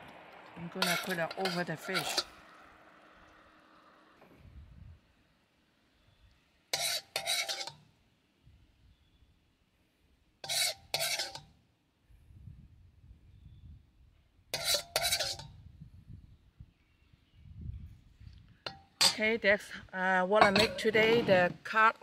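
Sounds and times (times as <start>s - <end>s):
metal spoon scraping metal pan: 0.7s - 2.4s, 6.7s - 7.9s, 10.4s - 11.5s, 14.6s - 15.6s, 18.7s - 19.3s, 20.4s - 21.5s.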